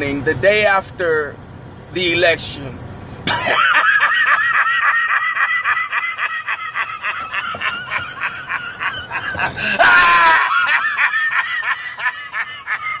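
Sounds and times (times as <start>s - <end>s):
man laughing mockingly: 3.3s - 13.0s.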